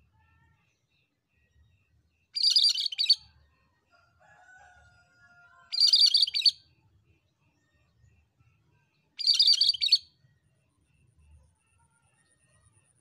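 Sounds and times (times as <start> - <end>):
bird chattering song: 2.4 - 3.2, 5.7 - 6.6, 9.2 - 10.1
bird drawn-out whistles: 2.4 - 3.2, 5.8 - 6.6, 9.2 - 10.0.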